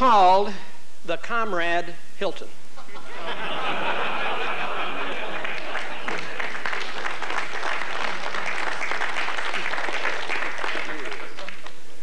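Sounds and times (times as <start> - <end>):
audience laughing: 2.8 - 8.3
audience applauding: 4.0 - 11.8.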